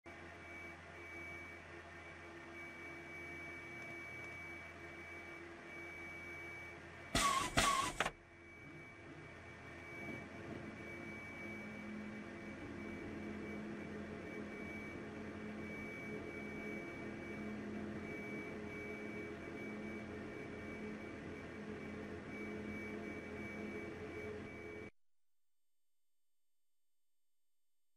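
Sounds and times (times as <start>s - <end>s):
electrical hum and whine: 0.1s - 24.9s
loud burst of noise: 7.2s - 8.1s.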